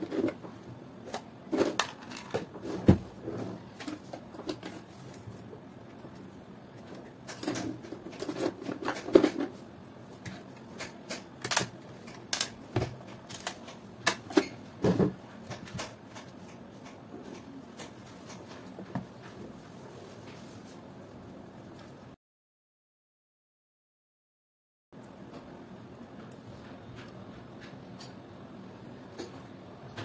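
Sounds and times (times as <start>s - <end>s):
plastic parts clicking and rattling: 1.1s - 2.6s, 6.9s - 9.5s, 10.8s - 18.6s.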